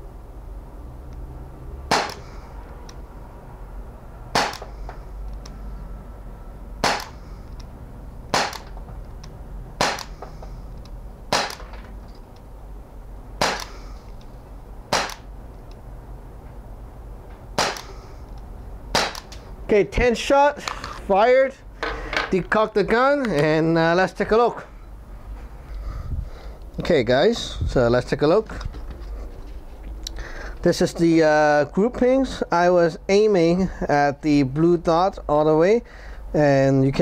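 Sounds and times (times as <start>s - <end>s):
bb pistol shots: 1.9s - 2.3s, 4.3s - 4.7s, 6.8s - 7.2s, 8.3s - 8.8s, 9.8s - 10.2s, 11.3s - 11.7s, 13.4s - 13.9s, 14.9s - 15.3s, 17.6s - 18.0s, 18.9s - 19.3s.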